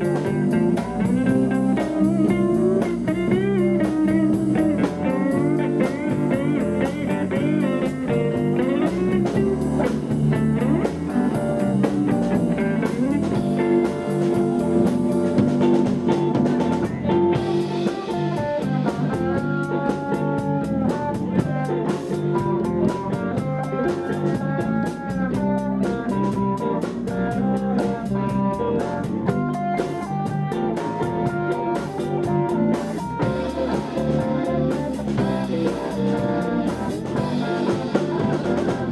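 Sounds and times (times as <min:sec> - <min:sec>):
bass guitar: 0:00.0 - 0:38.9
drum kit: 0:00.0 - 0:38.9
electric guitars: 0:00.0 - 0:38.9.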